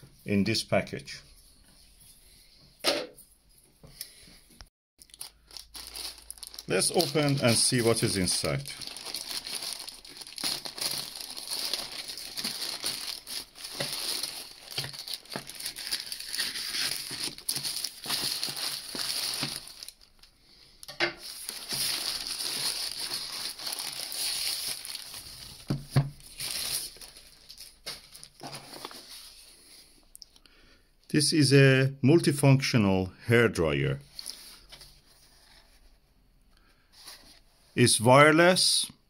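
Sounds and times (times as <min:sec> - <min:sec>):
plastic bag crinkling and rustling: 0:05.0 - 0:20.4, 0:21.2 - 0:29.6.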